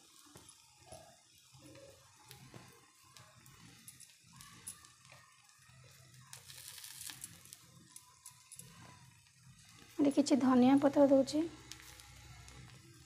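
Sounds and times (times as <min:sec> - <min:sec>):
soft rustle of sprinkled vegetables: 0:00.0 - 0:13.0.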